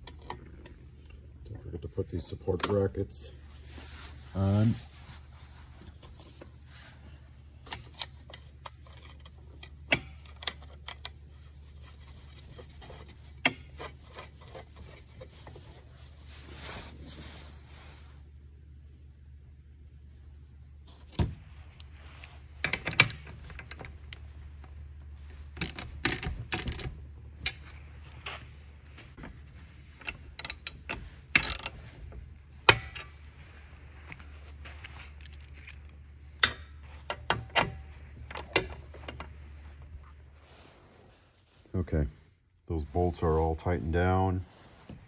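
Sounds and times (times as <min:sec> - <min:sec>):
steady low hum: 0:00.0 - 0:45.0
steel parts clinking: 0:21.7 - 0:24.2, 0:25.4 - 0:29.0, 0:30.0 - 0:32.0, 0:34.1 - 0:37.4
ratchet clicking: 0:25.6 - 0:26.9, 0:30.0 - 0:31.8.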